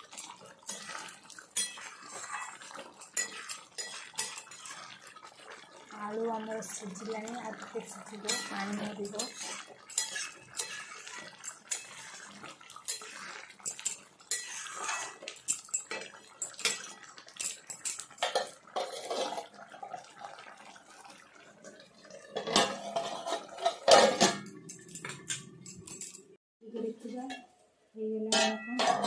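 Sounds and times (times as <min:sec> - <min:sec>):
metal spoon clinking on pan: 0:00.0 - 0:04.9, 0:07.2 - 0:19.4, 0:28.3 - 0:29.0
metal lid clattering on pan: 0:00.2 - 0:02.0, 0:02.8 - 0:04.6, 0:08.2 - 0:11.9, 0:17.6 - 0:19.5, 0:22.4 - 0:25.3, 0:28.3 - 0:29.0.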